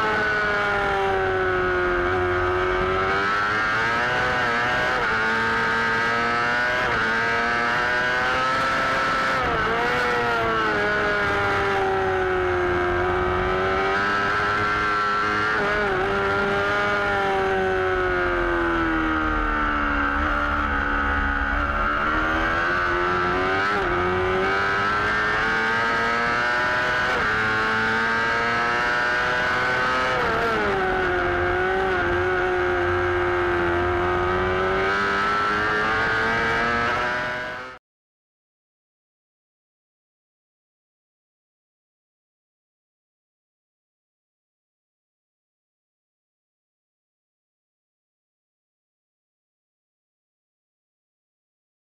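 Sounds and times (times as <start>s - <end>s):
motorcycle engine at high revs: 0.0s - 37.8s.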